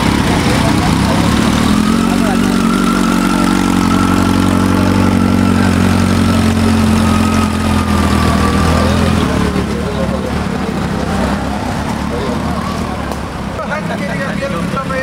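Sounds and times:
motorcycle engine idling and pulling away: 0.0s - 15.0s.

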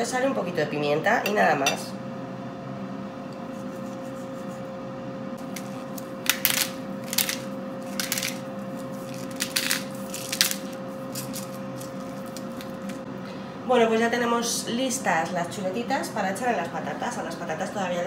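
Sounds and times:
air fryer humming: 0.0s - 18.0s
pepper mill grinding: 5.4s - 13.0s.

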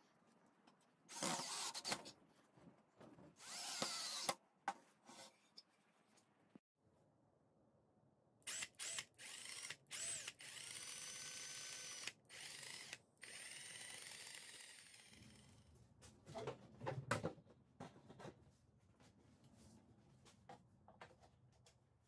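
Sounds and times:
cordless drill motor whirring: 1.1s - 2.0s, 3.4s - 4.4s, 8.5s - 15.4s.

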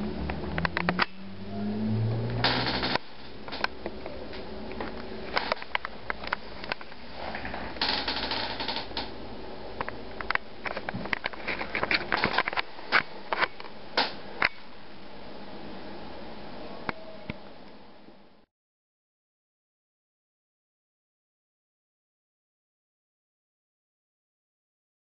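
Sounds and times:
low hum: 0.0s - 11.8s.

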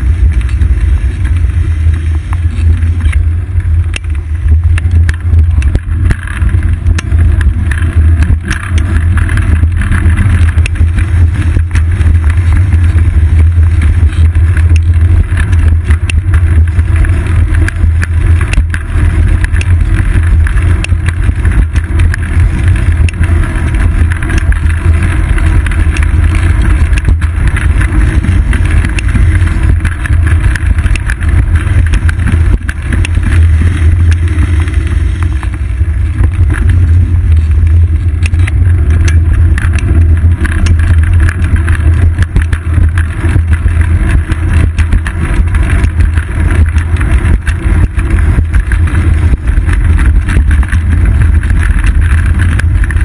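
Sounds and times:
bicycle knocks and rattles: 0.0s - 53.0s
wind rumble on microphone: 0.0s - 53.0s.

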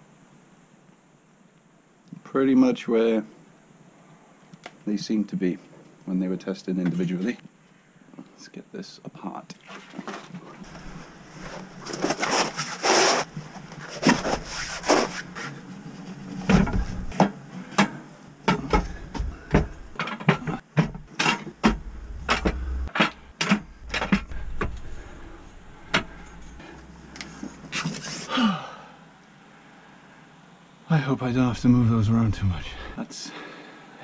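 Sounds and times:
rubbing and scraping: 10.1s - 28.3s
sharp clicks and knocks: 16.5s - 27.3s.

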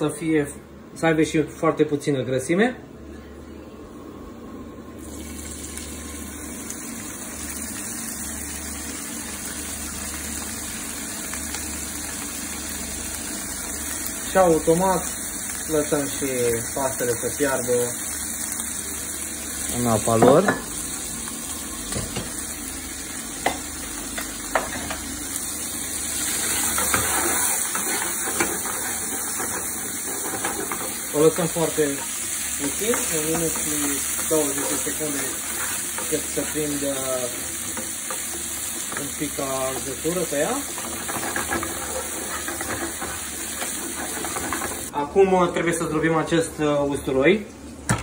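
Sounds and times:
meat sizzling in oil: 5.0s - 44.9s
spatula tapping and scraping pan: 26.6s - 31.0s, 40.8s - 44.9s.

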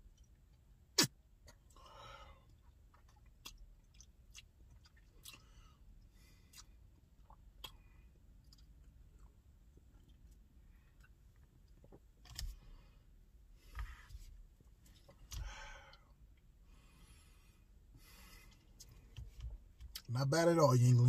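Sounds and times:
lip smacks and tongue clicks: 2.5s - 5.6s, 6.4s - 12.5s.

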